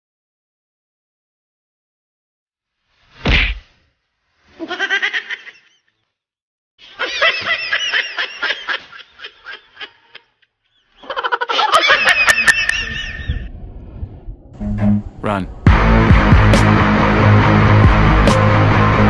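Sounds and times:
women laughing: 0:04.6 - 0:05.9, 0:06.8 - 0:13.5.

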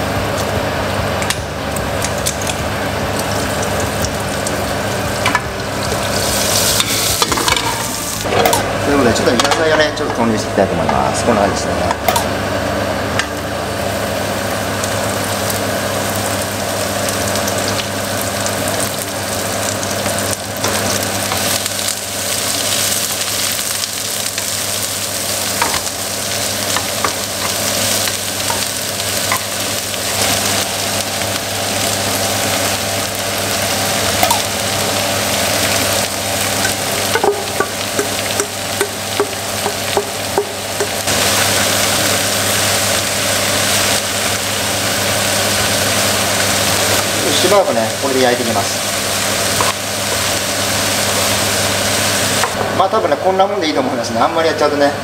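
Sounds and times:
vegetables sizzling in a frying pan: 0:00.0 - 0:10.1, 0:11.0 - 0:54.6
wooden spatula tapping a pan: 0:37.1 - 0:41.0.

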